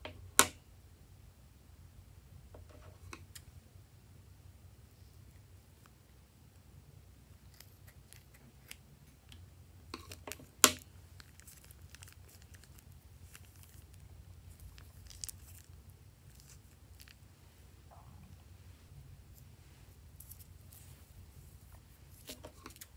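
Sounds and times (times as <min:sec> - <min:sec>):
plastic bag crinkling: 0:10.0 - 0:17.2.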